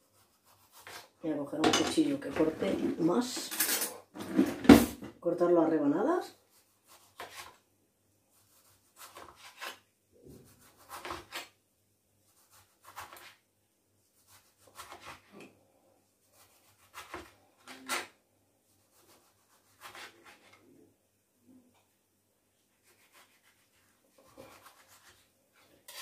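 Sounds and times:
knife slicing tomato on board: 0.1 - 1.1, 6.6 - 7.6, 8.4 - 11.6, 12.3 - 13.4, 14.2 - 15.5, 16.3 - 18.2, 18.9 - 20.6, 22.8 - 26.0.

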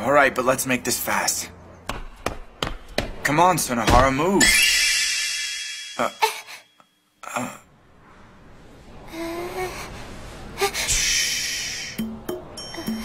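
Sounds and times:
girl hushing: 6.0 - 6.7.

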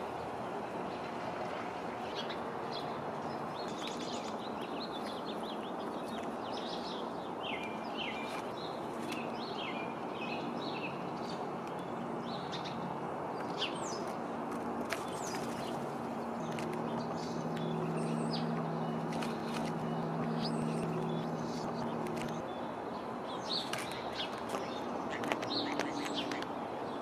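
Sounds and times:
small songbirds chirping: 0.0 - 27.0.

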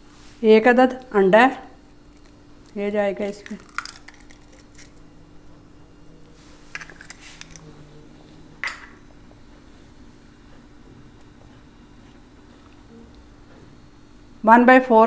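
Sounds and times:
low hum: 0.9 - 14.5
eggshell clicks and crackles: 2.1 - 5.0.

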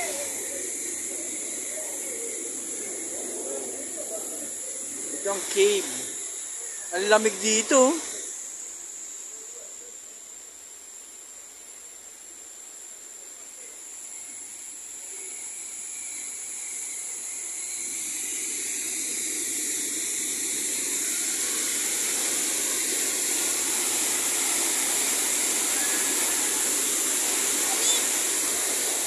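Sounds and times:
waterfall rushing: 0.0 - 8.2, 18.9 - 29.0.

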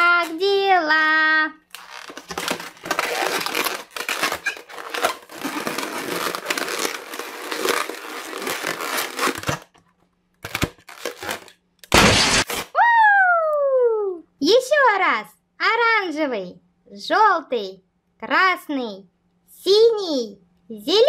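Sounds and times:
rubber balloon squeaking and rustling: 1.7 - 9.8
loud burst: 11.9 - 12.6.

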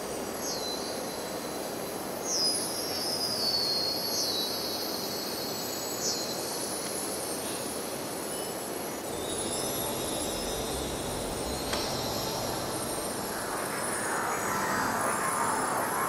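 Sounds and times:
high-pitched sliding squeals: 9.1 - 16.0
rushing rumbling noise: 9.1 - 16.0.

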